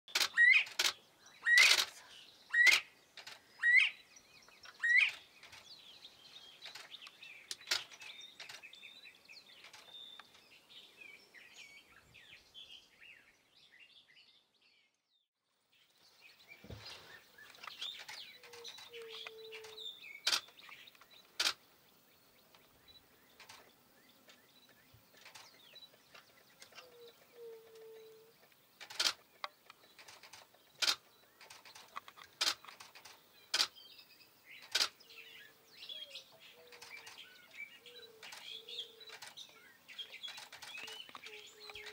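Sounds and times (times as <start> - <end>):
sharp clicks: 0.1 - 1.0, 1.6 - 2.0, 6.6 - 8.7, 17.5 - 21.6, 23.4 - 23.7, 28.4 - 33.8, 34.6 - 35.0, 38.2 - 41.9
high bird chirping: 0.1 - 14.3, 16.3 - 41.9
bird whistling rising calls: 3.6 - 4.0.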